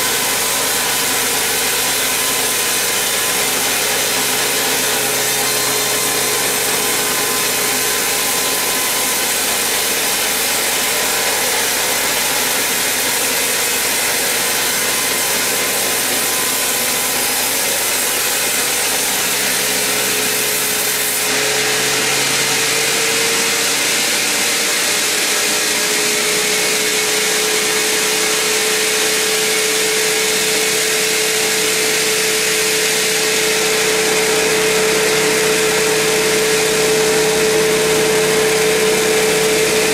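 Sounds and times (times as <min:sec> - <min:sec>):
band saw cutting log: 0:00.0 - 0:39.9
machine hum: 0:30.4 - 0:39.9.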